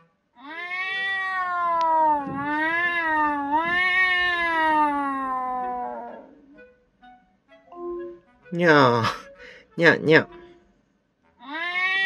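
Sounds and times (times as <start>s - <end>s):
cat meow through speaker: 0.4s - 6.4s, 11.4s - 12.0s.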